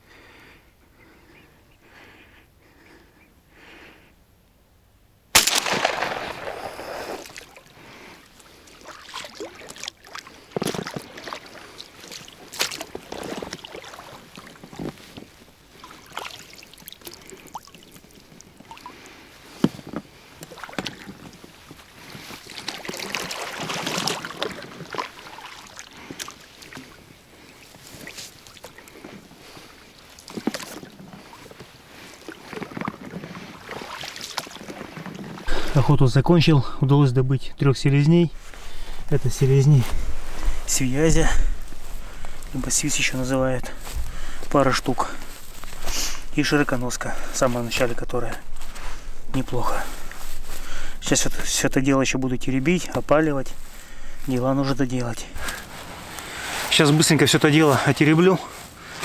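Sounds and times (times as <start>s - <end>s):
water splashing: 5.4s - 19.6s, 20.2s - 35.8s, 38.3s - 51.6s.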